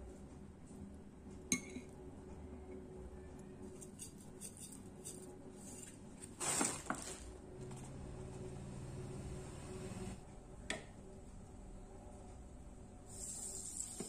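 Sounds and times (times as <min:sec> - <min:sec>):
plastic packaging crinkling: 0:06.3 - 0:07.4.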